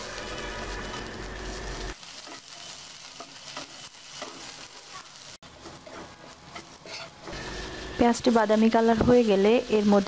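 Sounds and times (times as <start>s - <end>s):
onions sizzling in oil: 0.0s - 10.0s
wooden spatula scraping pan: 5.5s - 7.4s.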